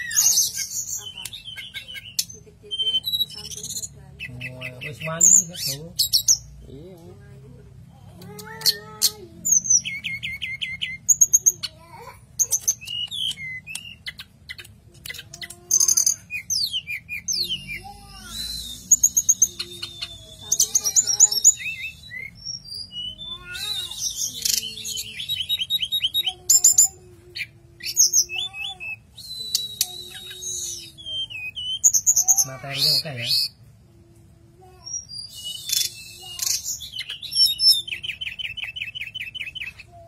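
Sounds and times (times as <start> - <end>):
bird singing whistled trills: 15.9 - 26.2, 27.8 - 32.4, 34.9 - 39.8.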